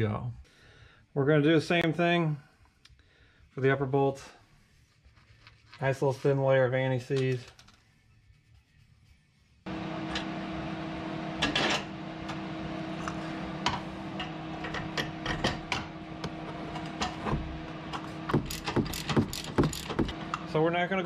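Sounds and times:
steady mechanical hum: 0:09.7 - 0:21.0
metallic clicks of bolts and nuts: 0:18.4 - 0:20.1.

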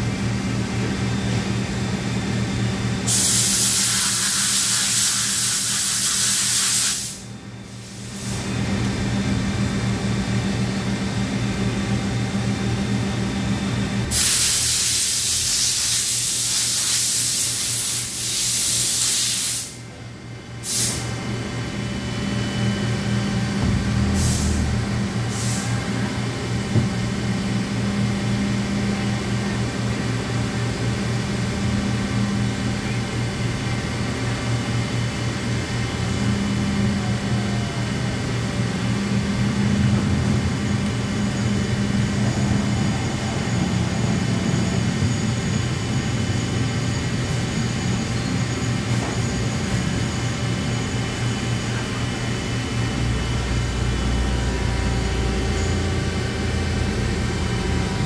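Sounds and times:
lathe machine hum: 0:33.1 - 0:58.0.

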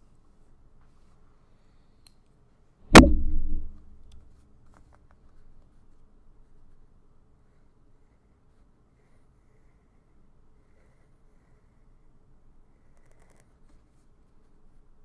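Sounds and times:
sharp thump with low ring: 0:02.9 - 0:04.1.

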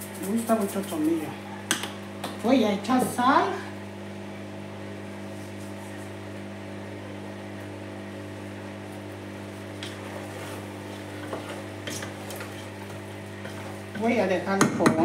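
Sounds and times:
induction hob humming: 0:00.0 - 0:15.0
wooden spoon knocking in pot: 0:14.5 - 0:15.0.

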